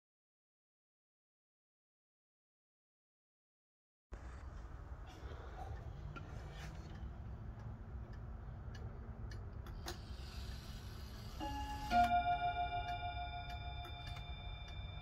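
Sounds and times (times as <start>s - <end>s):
clock ticking: 5.2s - 10.4s, 11.4s - 15.0s
clock striking bim-bam: 11.4s - 15.0s.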